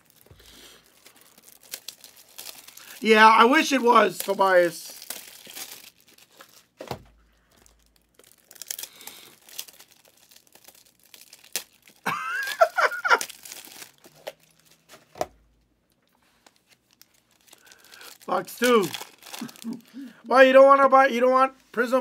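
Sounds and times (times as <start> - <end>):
cards and packaging rustling: 0.0 - 15.4, 16.0 - 20.1
cards thumping down: 6.8 - 7.2.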